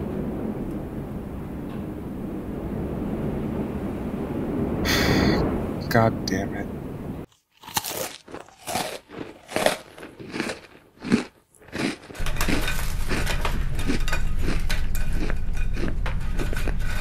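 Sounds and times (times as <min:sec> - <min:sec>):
low hum: 0:00.0 - 0:07.3, 0:12.2 - 0:17.0
cookies crunching: 0:07.3 - 0:17.0
crumbs crackling: 0:07.3 - 0:17.0.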